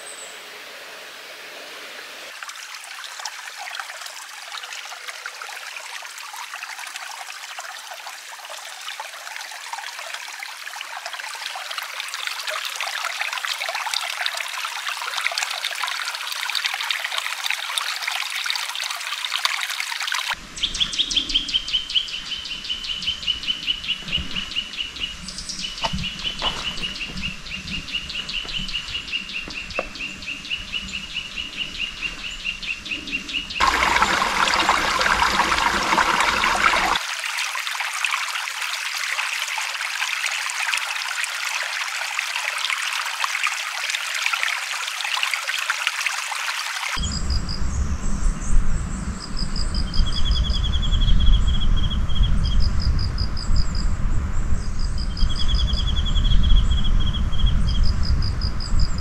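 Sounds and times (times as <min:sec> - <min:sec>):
stream trickling and splashing: 0:00.0 - 0:20.4, 0:22.6 - 0:32.4, 0:33.5 - 0:47.2.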